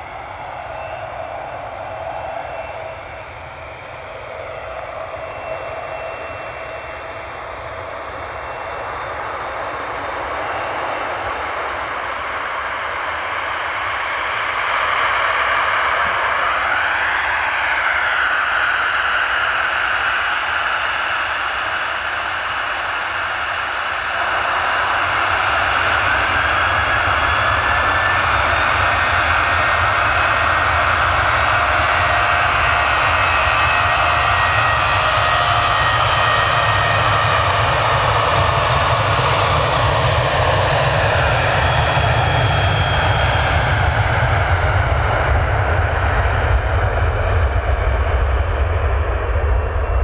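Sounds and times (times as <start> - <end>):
jet engine roar with whining fan: 0.0 - 50.0.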